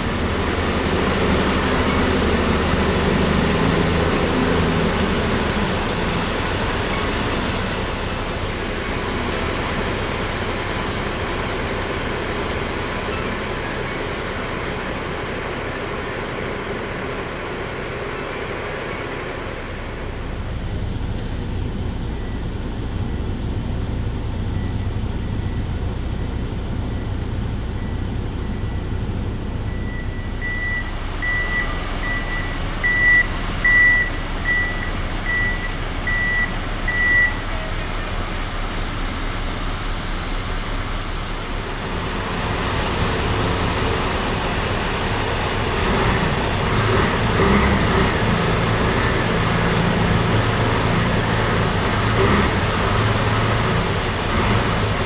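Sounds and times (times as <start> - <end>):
diesel engine rumble: 0.0 - 55.0
reversing alarm beeping: 22.1 - 23.4, 24.4 - 37.7.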